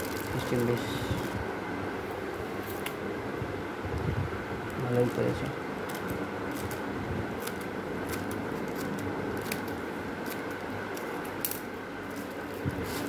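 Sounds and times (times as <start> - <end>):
scissors snipping plastic bag: 0.0 - 1.4.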